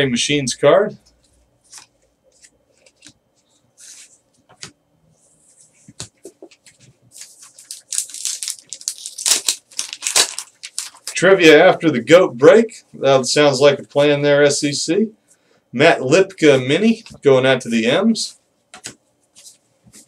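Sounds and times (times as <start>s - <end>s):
wrapper tearing open: 7.2s - 11.2s.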